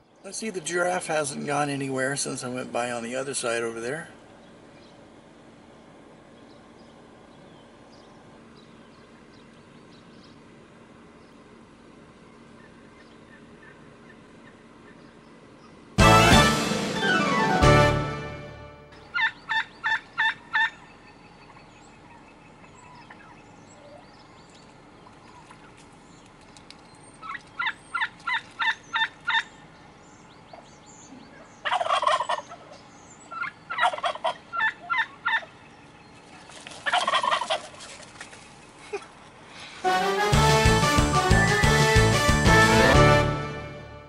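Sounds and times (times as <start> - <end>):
turkey gobbling: 12.5 - 15.0, 19.0 - 24.0, 27.2 - 29.6, 31.3 - 35.6, 36.8 - 37.9
background music: 16.0 - 19.2, 39.8 - 44.0.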